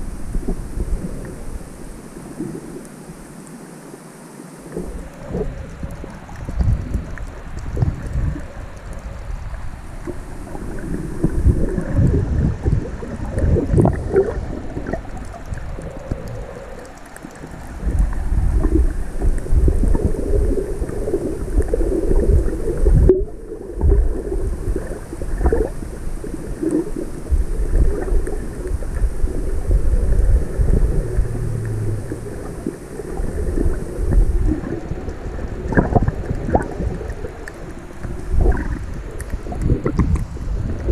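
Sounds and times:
underwater water rumble: 0.0 - 40.9
low thumps: 30.1 - 32.8.

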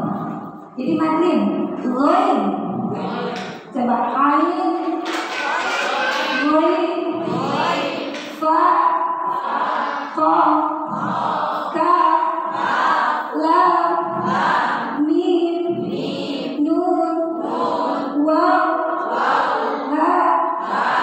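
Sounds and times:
women chanting in unison: 0.0 - 21.0.

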